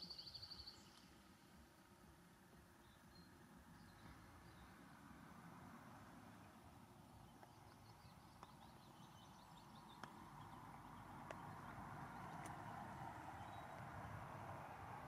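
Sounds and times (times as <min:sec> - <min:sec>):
faint high twittering: 0:00.0 - 0:01.6.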